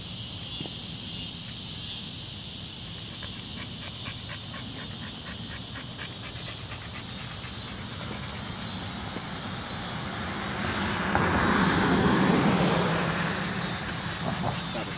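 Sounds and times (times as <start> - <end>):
background traffic noise: 0.0 - 14.9
vehicle passing: 6.2 - 14.9.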